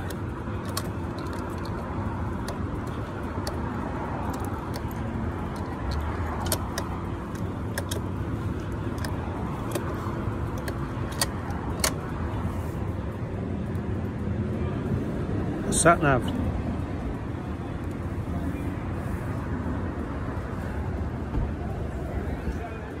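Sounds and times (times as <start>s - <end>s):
motorcycle buttons clicking: 0.0s - 12.1s
low vehicle rumble: 0.0s - 23.0s.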